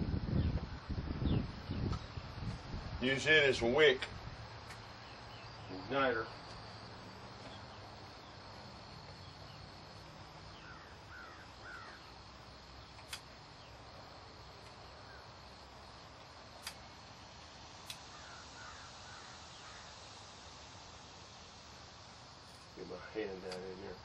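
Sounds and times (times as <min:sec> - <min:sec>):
bird calling faintly: 0:07.4 - 0:13.9, 0:17.9 - 0:20.1
sharp handling clicks: 0:12.9 - 0:13.3.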